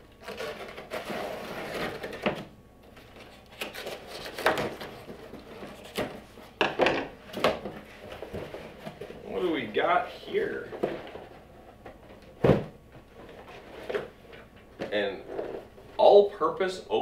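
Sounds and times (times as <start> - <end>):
cardboard and tape rustling: 0.0 - 6.6, 7.2 - 16.0
cardboard ripping: 0.2 - 2.4, 3.0 - 6.2.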